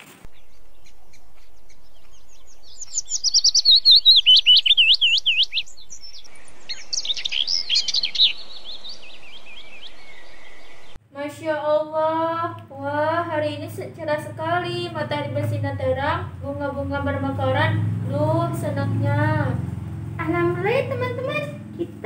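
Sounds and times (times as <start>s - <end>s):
birds singing whistled notes: 0.3s - 11.0s
soft bird chirps: 0.3s - 11.0s.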